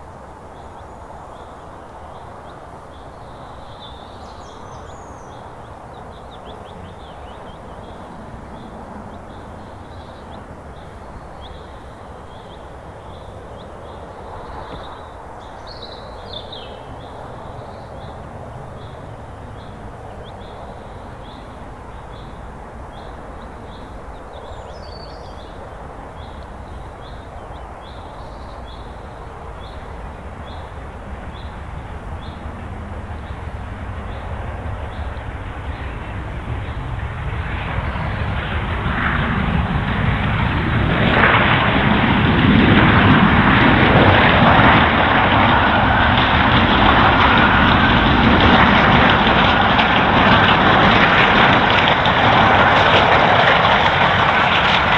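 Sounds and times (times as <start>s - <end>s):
steam locomotive running: 28.8s - 54.9s.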